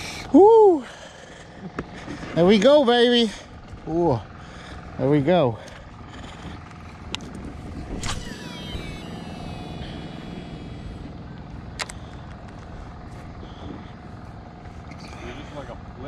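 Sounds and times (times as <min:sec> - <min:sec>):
steady low rumble: 0:00.0 - 0:16.0
reel brake whine: 0:05.6 - 0:16.0
fishing cast swish: 0:07.9 - 0:10.1.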